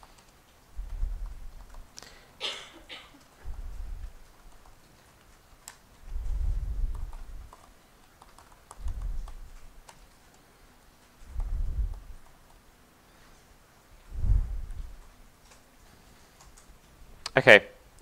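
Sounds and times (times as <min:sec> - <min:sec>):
dull low thumps: 0:00.8 - 0:01.6, 0:03.4 - 0:04.2, 0:06.1 - 0:07.5, 0:11.3 - 0:12.2, 0:14.1 - 0:15.0.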